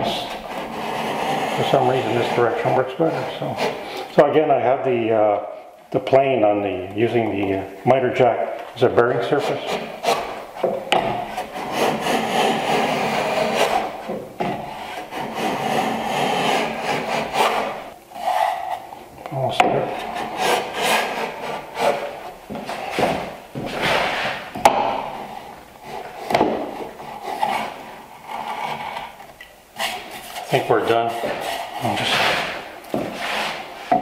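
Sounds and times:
hand plane shaving wood: 0.1s - 4.0s, 9.4s - 10.4s, 11.0s - 18.5s, 19.8s - 24.4s, 25.2s - 29.0s, 29.8s - 34.0s.

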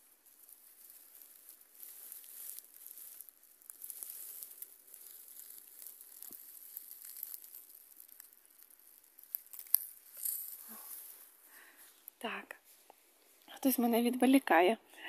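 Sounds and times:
dry grass and leaves rustling: 0.0s - 14.4s
small ticks: 0.2s - 11.1s.

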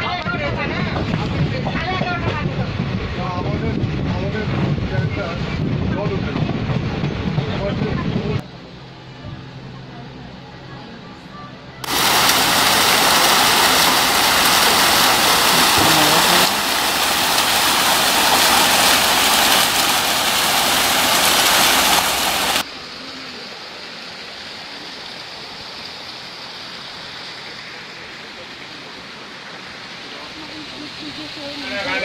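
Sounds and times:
waterfall rushing over rocks: 11.8s - 22.7s
faint steady hiss: 11.8s - 31.7s.

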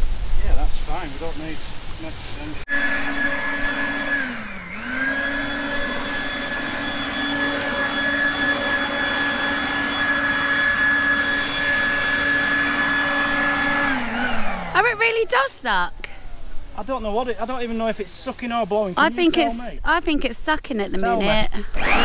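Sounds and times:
leaf blower motor whine: 2.7s - 14.9s, 21.0s - 22.0s.

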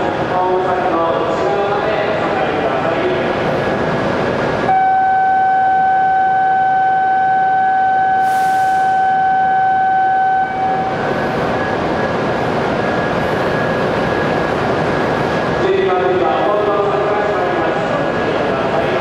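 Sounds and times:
train hum: 0.0s - 19.0s
electronic warning tone: 4.7s - 10.9s
short hiss: 8.2s - 9.0s.

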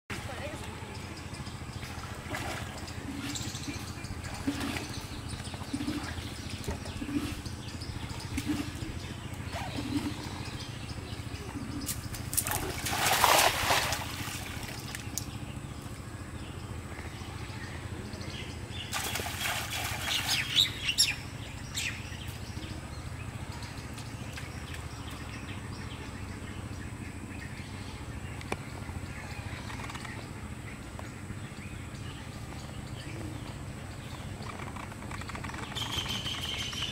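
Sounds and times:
steady low hum: 0.1s - 36.9s
water slaps: 1.8s - 7.5s, 11.9s - 15.3s, 18.9s - 20.7s
cast net splashing into water: 12.3s - 14.9s, 18.9s - 20.6s.

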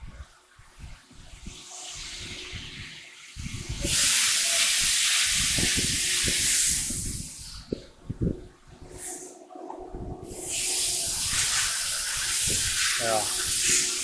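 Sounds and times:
compressed air hissing: 1.4s - 7.9s, 8.9s - 9.4s, 10.2s - 14.0s.

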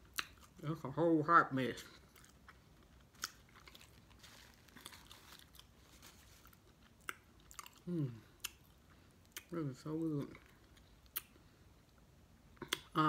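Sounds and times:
wet chewing: 2.0s - 9.6s.

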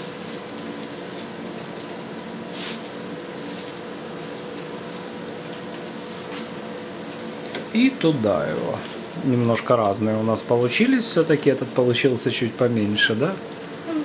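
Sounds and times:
wet handling of cheese curd: 0.0s - 7.4s.

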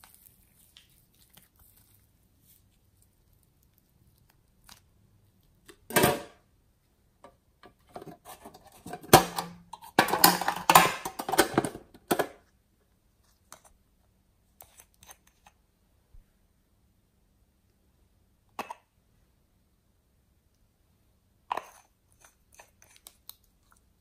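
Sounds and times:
metal tin scrape: 8.0s - 11.8s.

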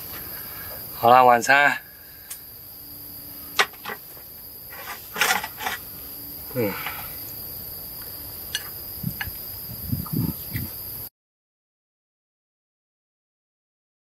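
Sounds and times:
crickets trilling: 0.0s - 11.1s.

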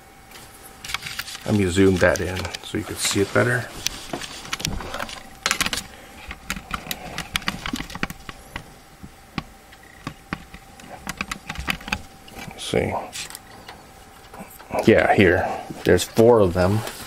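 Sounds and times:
faint steady whine: 0.0s - 17.0s
camera handling clicks and rattles: 3.8s - 8.6s, 10.0s - 12.4s.

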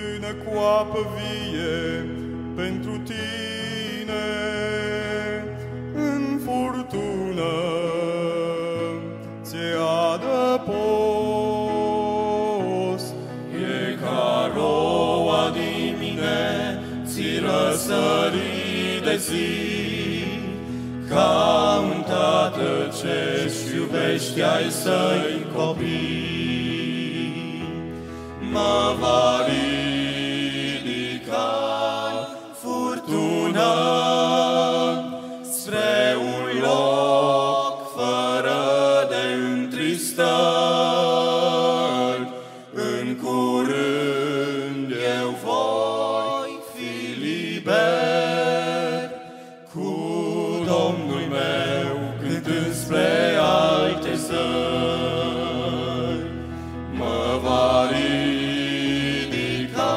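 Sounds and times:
male vocal quartet singing: 0.0s - 59.9s
singers breathing: 20.6s - 21.1s, 27.8s - 28.5s, 42.3s - 42.8s, 49.2s - 49.7s, 56.3s - 56.9s.

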